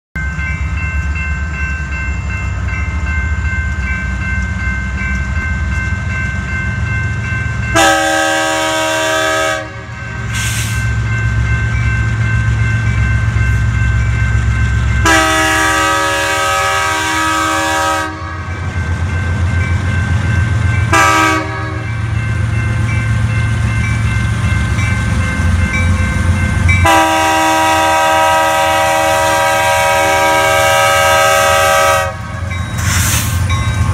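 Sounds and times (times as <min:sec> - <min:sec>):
low rumble of locomotives: 0:00.2 - 0:33.9
locomotive air horn blasts: 0:07.8 - 0:10.7, 0:15.0 - 0:18.5, 0:20.9 - 0:21.9, 0:26.8 - 0:32.4.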